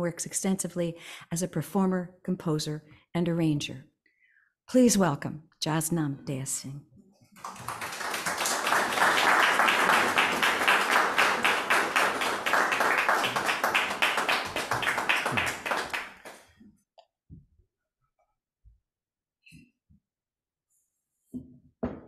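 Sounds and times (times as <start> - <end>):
crowd applauding: 7.4 - 16.4.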